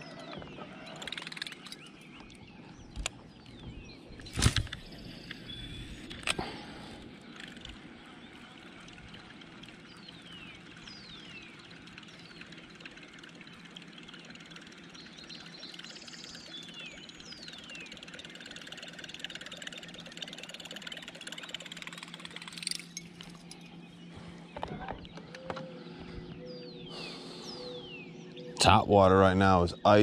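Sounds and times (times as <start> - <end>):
steady low hum: 0.0 - 30.0
sharp click: 4.2 - 4.9.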